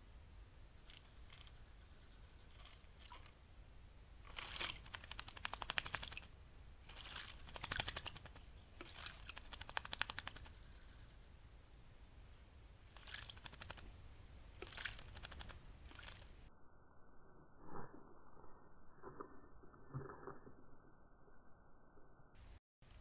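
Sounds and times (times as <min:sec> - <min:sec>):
bird splashing water with wings: 0:02.5 - 0:03.4, 0:04.2 - 0:10.5, 0:12.9 - 0:13.9, 0:14.6 - 0:16.3.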